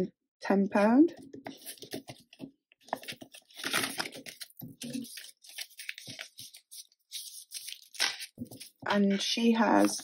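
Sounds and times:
plastic binder pocket rustling: 0:01.3 - 0:08.8
banknotes crinkling: 0:01.4 - 0:10.0.

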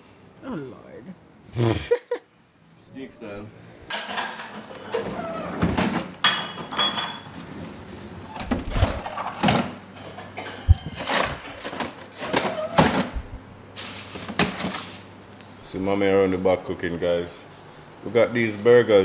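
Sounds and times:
freezer drawer sliding open: 0:04.6 - 0:06.2, 0:07.3 - 0:09.8, 0:10.6 - 0:13.2.

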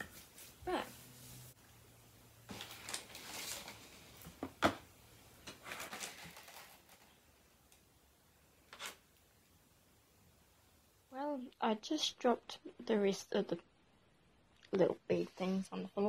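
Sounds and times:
rustling handling noise: 0:02.4 - 0:04.6, 0:05.4 - 0:07.4.

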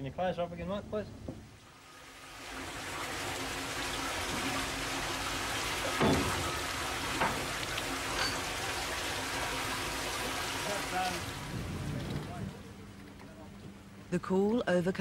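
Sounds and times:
water gushing into a tank: 0:01.6 - 0:12.2
knocks: 0:05.9 - 0:06.6.

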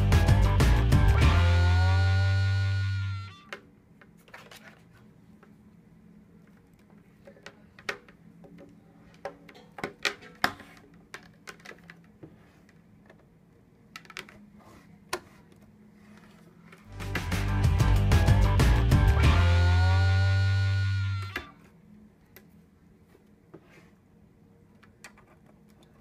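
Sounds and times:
held music chord: 0:16.9 - 0:21.5.

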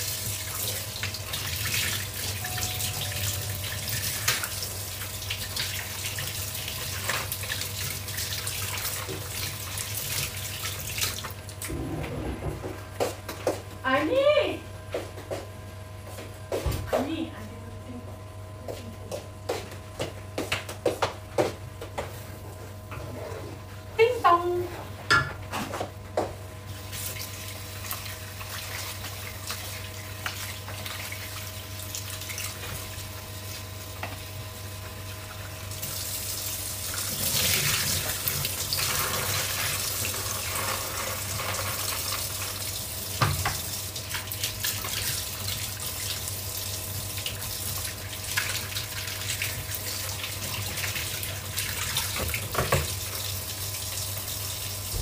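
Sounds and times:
tap running into a sink: 0:43.2 - 0:45.0, 0:52.0 - 0:53.0.

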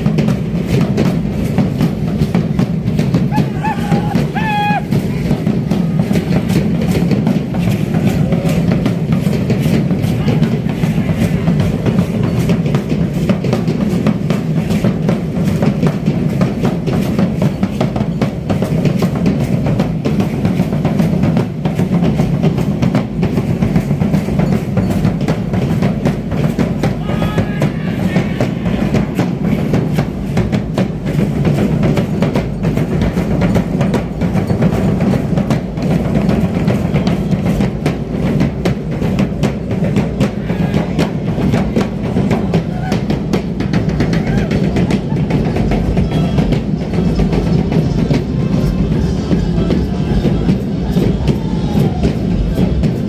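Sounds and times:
bass drum beat: 0:00.0 - 0:53.0
snare drums playing: 0:00.0 - 0:53.0.

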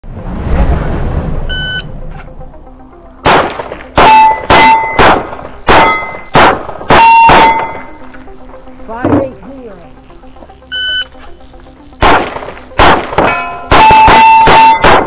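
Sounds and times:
pistol shots: 0:03.2 - 0:07.8, 0:12.0 - 0:15.0
steel plate ringing: 0:04.0 - 0:05.0, 0:05.8 - 0:06.3, 0:06.9 - 0:07.9, 0:13.2 - 0:14.9
shot timer beep: 0:06.9 - 0:08.0, 0:10.7 - 0:11.2.

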